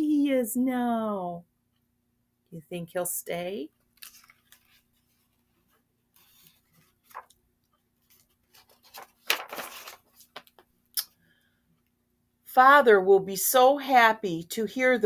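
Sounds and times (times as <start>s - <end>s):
book pages rustling and turning: 3.8s - 10.8s.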